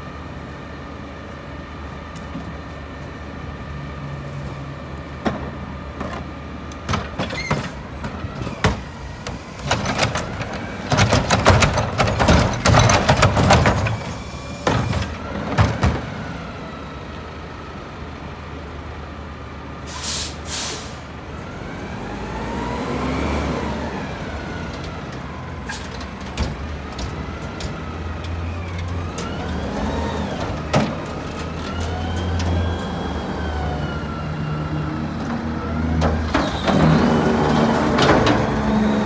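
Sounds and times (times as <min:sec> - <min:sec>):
diesel truck engine revving: 0:20.6 - 0:25.6, 0:26.8 - 0:39.0.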